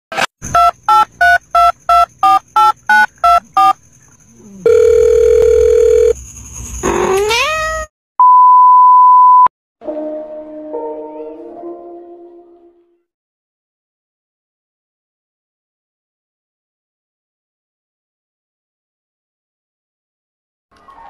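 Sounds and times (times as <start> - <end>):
phone keypad beeps: 0.6 - 3.8
low telephone tone: 4.7 - 6.2
cat meowing: 7.1 - 7.9
long flat beep: 8.2 - 9.5.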